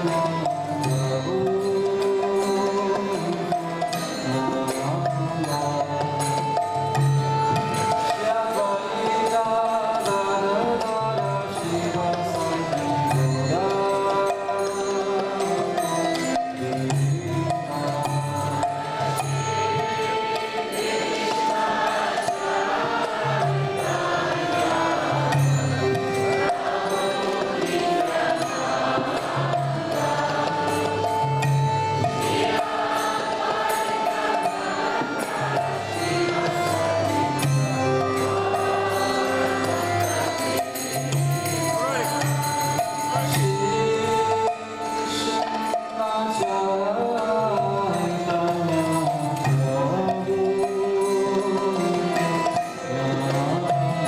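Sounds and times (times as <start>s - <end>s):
group chanting: 20.3s - 25.4s, 32.3s - 36.5s
hand drum beat: 26.0s - 36.8s.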